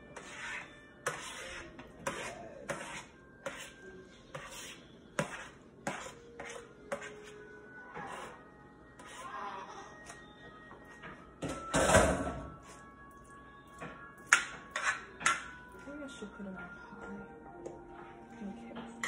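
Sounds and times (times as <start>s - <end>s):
metal spoon scraping a plate: 0.0s - 7.4s, 14.3s - 15.5s.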